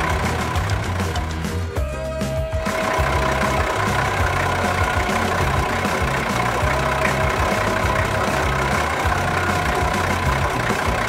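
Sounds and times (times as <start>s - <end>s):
cartoon truck engine rumble: 0.0s - 11.0s.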